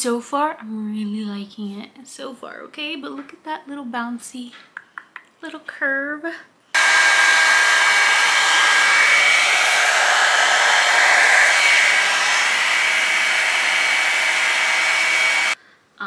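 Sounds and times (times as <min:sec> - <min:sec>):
hot-air brush blowing with motor whine: 0:06.8 - 0:15.6.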